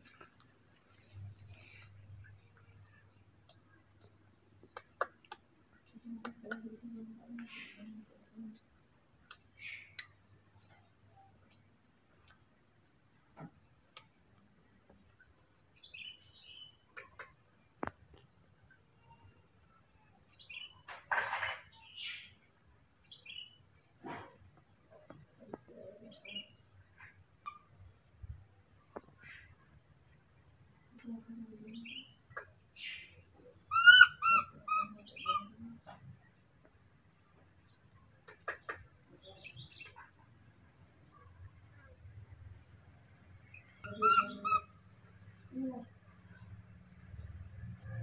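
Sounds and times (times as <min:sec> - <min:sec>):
faint clicks: 0:00.0 - 0:12.5
loud chirping calls: 0:09.2 - 0:11.6, 0:31.7 - 0:35.8, 0:38.2 - 0:40.2, 0:41.0 - 0:47.6.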